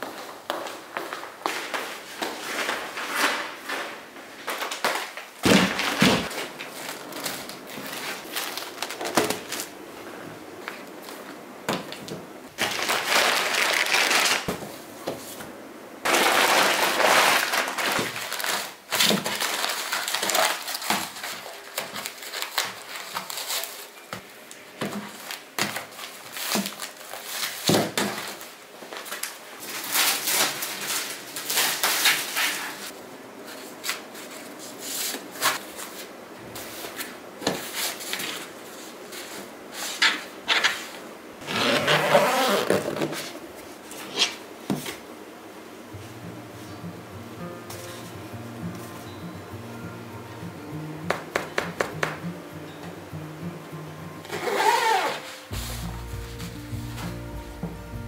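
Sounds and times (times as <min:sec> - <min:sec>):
plastic bag crinkling: 0:02.3 - 0:09.8, 0:12.6 - 0:14.5, 0:16.1 - 0:33.0.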